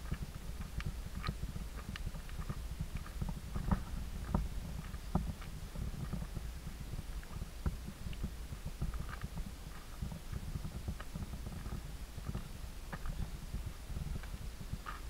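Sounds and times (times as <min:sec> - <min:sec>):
microphone handling rumble: 0:00.0 - 0:15.0.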